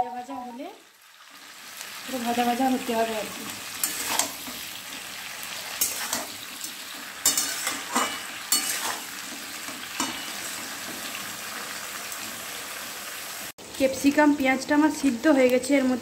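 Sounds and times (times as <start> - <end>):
vegetables sizzling in oil: 0.0 - 16.0
spatula scraping a pan: 3.6 - 11.3.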